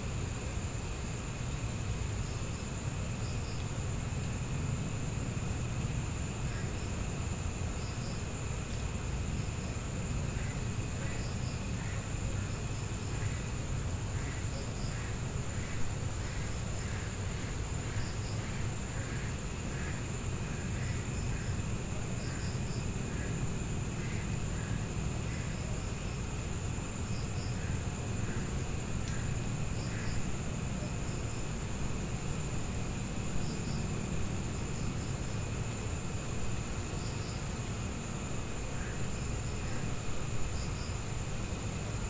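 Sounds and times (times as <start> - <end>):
insects trilling: 0.0 - 42.0.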